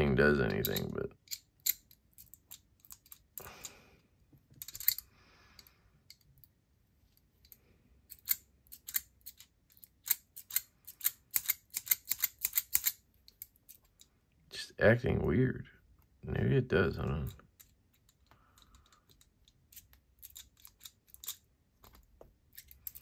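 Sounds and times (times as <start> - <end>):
metal fidget toy clicking: 8.1 - 13.5.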